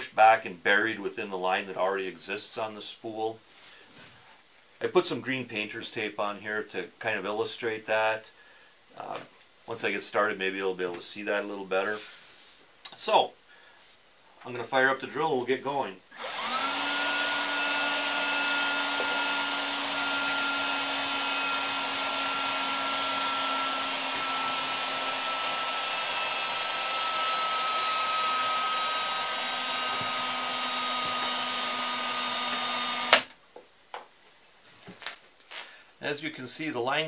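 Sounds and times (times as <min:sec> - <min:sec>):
cordless drill running: 0:16.1 - 0:33.3.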